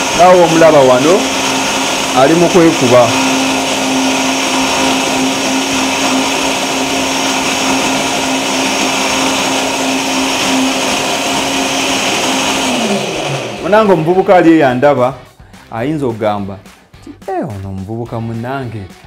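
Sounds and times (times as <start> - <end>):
electric blender running: 0.0 - 14.9.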